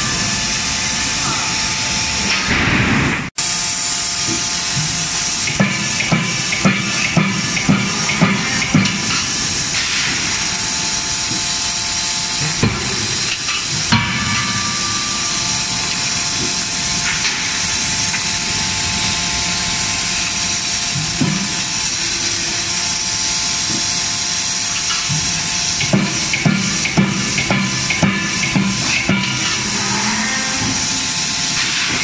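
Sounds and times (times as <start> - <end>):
steady hiss: 3.4 - 32.0
forging hammer striking steel: 4.3 - 22.0, 24.7 - 32.0.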